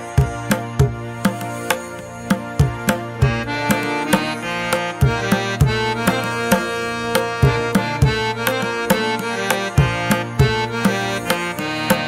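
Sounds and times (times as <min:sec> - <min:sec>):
sustained instrumental melody: 0:00.0 - 0:12.0
drum beat: 0:02.3 - 0:11.2.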